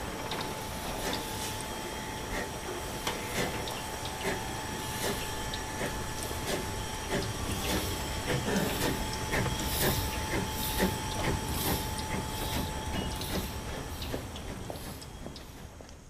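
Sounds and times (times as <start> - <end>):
hissing steam puffs: 0.0 - 15.8
model train wheels clicking: 0.0 - 16.0.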